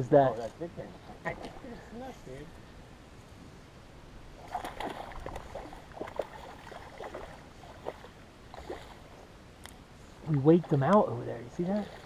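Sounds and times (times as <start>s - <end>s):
short splashes and knocks: 1.0s - 1.8s, 4.4s - 9.2s, 10.2s - 12.0s
water lapping against boat hull: 4.4s - 12.0s.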